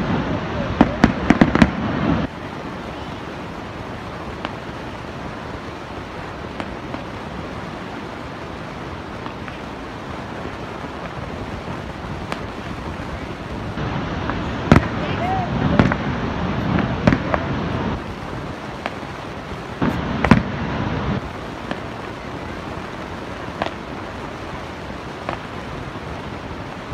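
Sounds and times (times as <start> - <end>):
distant fireworks pops: 0.0 - 26.9
steady rushing noise: 0.0 - 26.9.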